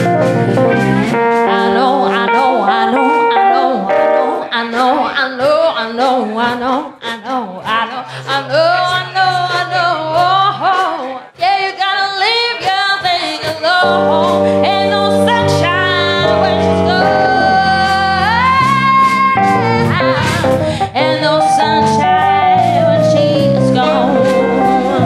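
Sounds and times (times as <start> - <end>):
band playing sustained chords: 0.0 - 4.5, 13.8 - 25.0
woman singing: 1.2 - 25.0
drums and cymbals: 17.7 - 20.8.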